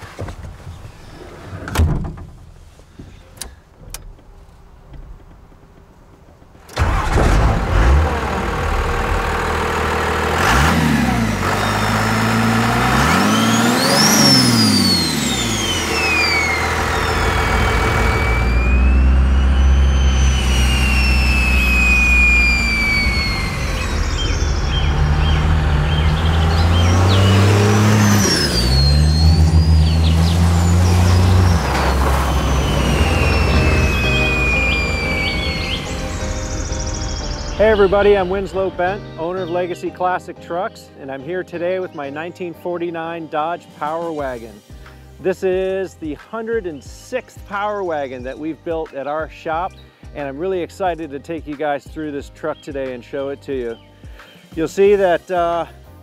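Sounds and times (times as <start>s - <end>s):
diesel engine revving: 6.7s - 39.9s
turbocharger whistling: 6.8s - 39.7s.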